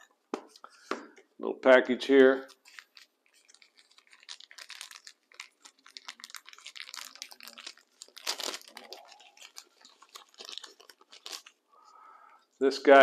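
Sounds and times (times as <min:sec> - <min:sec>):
wrapper crinkling: 0:02.4 - 0:11.9.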